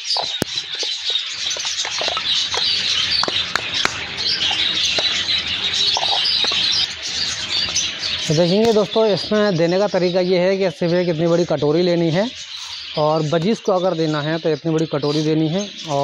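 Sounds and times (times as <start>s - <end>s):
budgerigars chattering and chirping: 0.0s - 16.0s.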